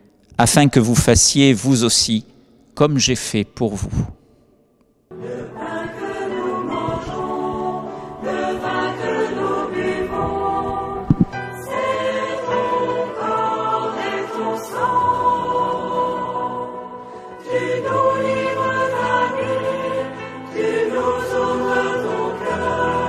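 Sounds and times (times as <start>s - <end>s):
choir singing held chords: 5.1s - 23.0s
brief thump: 11.0s - 11.4s.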